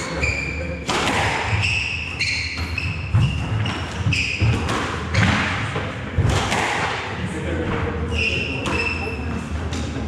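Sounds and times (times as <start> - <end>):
squash ball hits: 0.8 - 7.2
shoes squeaking on wooden floor: 1.4 - 5.6, 7.9 - 9.6.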